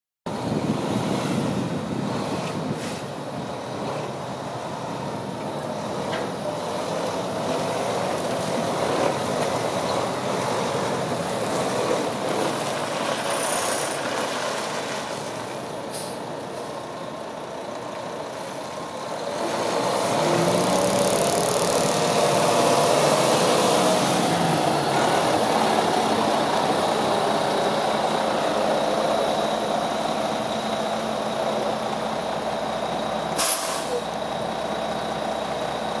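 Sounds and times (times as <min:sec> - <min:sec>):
air brakes hissing: 0:02.8 - 0:03.2, 0:15.9 - 0:16.3, 0:33.4 - 0:34.1
truck diesel engine running: 0:14.1 - 0:36.0.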